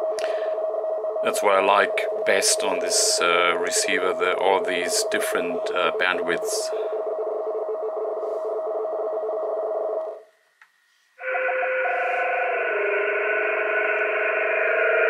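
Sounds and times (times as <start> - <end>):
warbling radio data tones: 0.0 - 10.2
radio band noise: 1.2 - 7.3.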